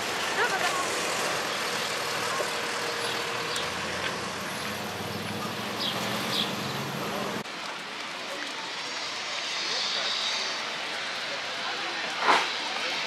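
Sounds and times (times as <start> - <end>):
truck engine humming: 0.0 - 7.6
street traffic: 0.0 - 13.0.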